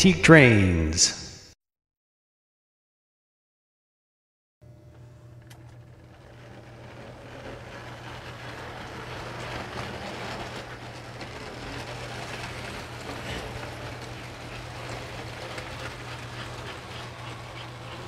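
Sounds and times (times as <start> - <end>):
toy train wheels clattering: 5.4 - 18.0.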